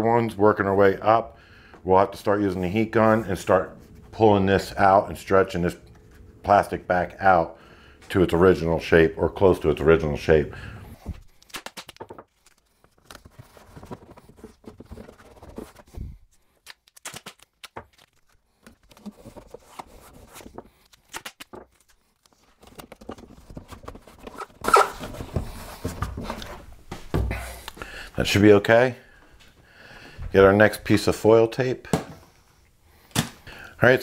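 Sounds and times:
foil tape crinkling and peeling: 0:16.5 - 0:19.1.

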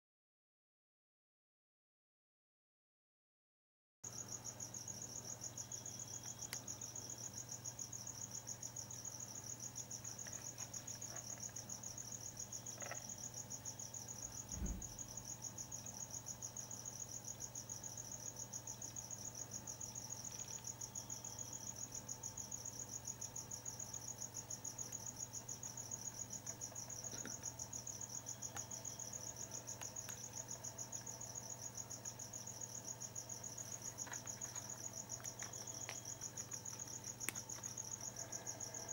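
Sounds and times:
crickets chirping: 0:04.1 - 0:38.9
dull thump: 0:14.4 - 0:15.1.

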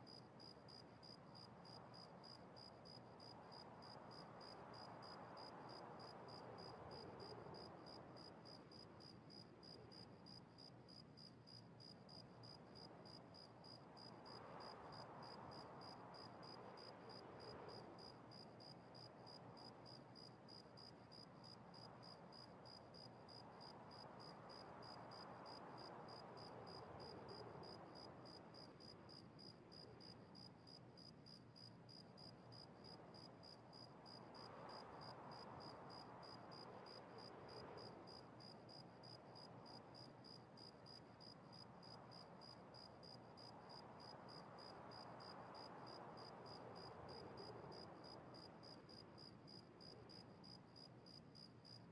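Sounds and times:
faint room hiss: 0:00.0 - 0:51.9.

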